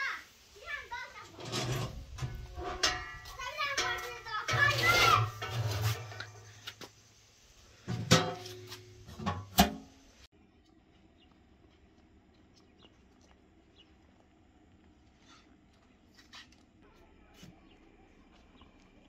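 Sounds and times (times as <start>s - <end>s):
metal oven door clanging: 1.4s - 6.4s.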